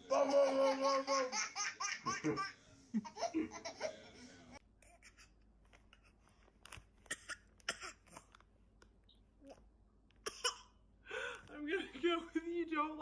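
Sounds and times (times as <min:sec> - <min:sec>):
baby giggling: 0:00.1 - 0:04.0.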